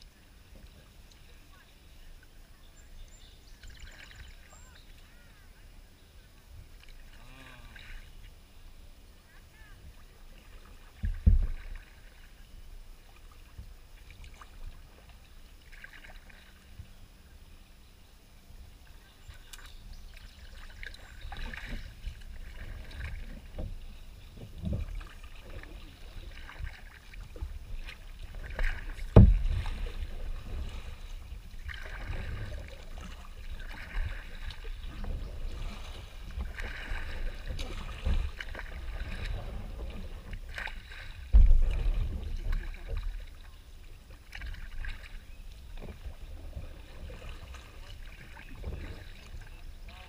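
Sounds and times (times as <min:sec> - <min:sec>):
paddle splashing and dripping: 0:00.0 - 0:50.0
low thumps: 0:29.0 - 0:30.0, 0:41.2 - 0:42.4
loud thuds: 0:29.1 - 0:29.8.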